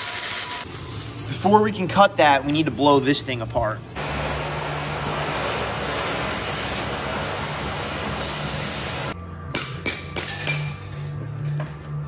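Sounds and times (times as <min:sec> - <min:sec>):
cutting torch hissing: 0:04.0 - 0:09.2.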